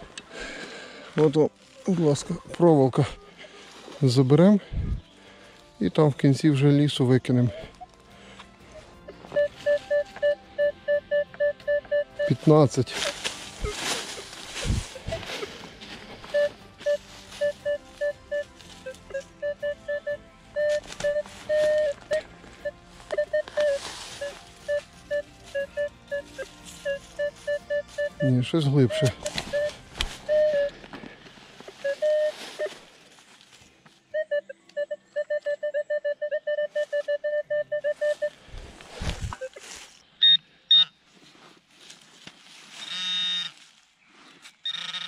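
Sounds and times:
metal detector beeping: 9.3s - 13.2s, 14.2s - 30.8s, 31.8s - 32.8s, 34.2s - 38.4s, 39.2s - 41.0s, 42.8s - 43.6s, 44.6s - 45.0s
dry leaves rustling: 12.4s - 19.1s, 22.9s - 27.5s, 28.8s - 33.8s, 37.9s - 40.0s, 41.1s - 44.3s.

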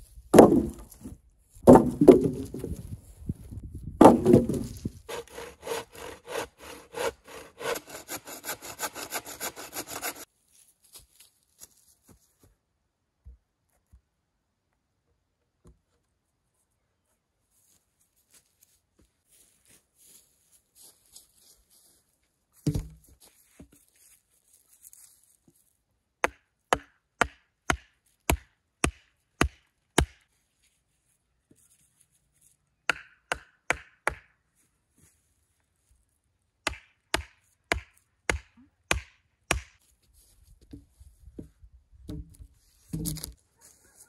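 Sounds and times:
axe chopping wood: 0.3s - 2.8s, 4.0s - 8.0s, 22.7s - 23.0s, 26.2s - 30.2s, 32.9s - 34.3s, 36.6s - 39.8s, 42.1s - 43.4s
log thudding onto ground: 0.3s - 3.0s, 3.8s - 5.0s, 22.6s - 23.2s, 42.0s - 43.4s.

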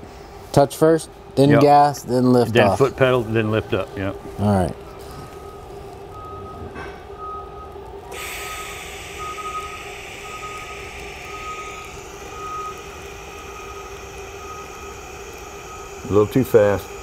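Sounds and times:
low steady hum: 0.0s - 17.0s
welding arc hiss: 8.0s - 17.0s
high beep: 9.2s - 16.2s.

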